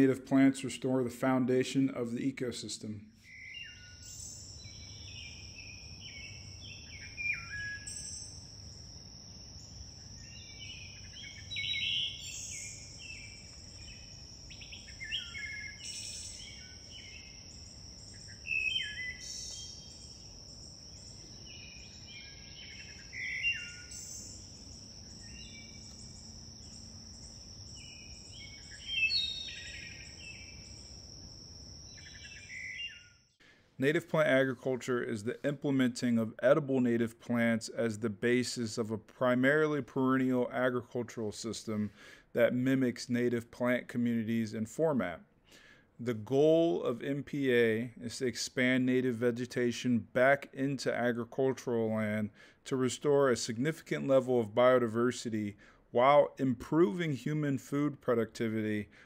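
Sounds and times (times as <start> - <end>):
songbirds singing: 3.2 - 33.4
insect buzzing: 3.6 - 33.3.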